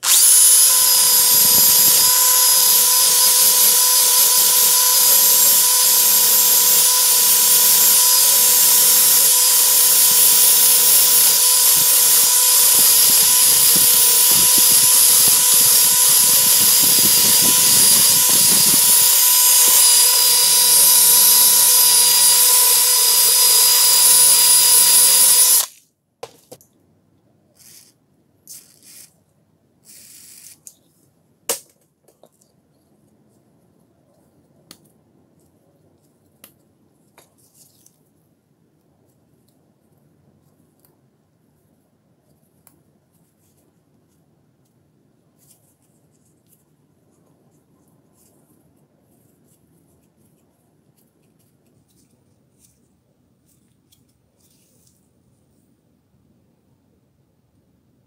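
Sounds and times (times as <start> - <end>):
drill wire brush scrubbing metal: 0.0 - 25.8.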